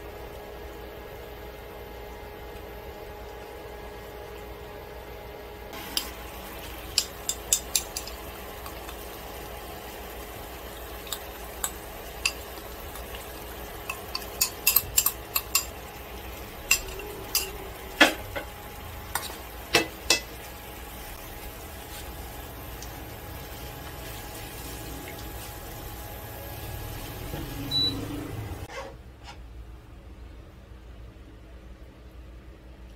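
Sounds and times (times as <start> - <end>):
food sizzling in frying pan: 5.7 - 28.7
utensils knocking against pan: 6.9 - 8.2, 13.8 - 15.8, 16.7 - 18.5, 19.1 - 20.3.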